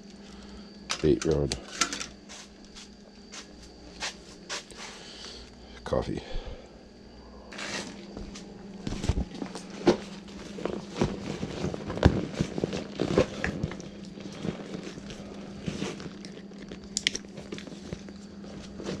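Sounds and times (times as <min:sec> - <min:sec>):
faint steady hum: 0:00.0 - 0:19.0
plastic bag crinkling: 0:10.4 - 0:19.0.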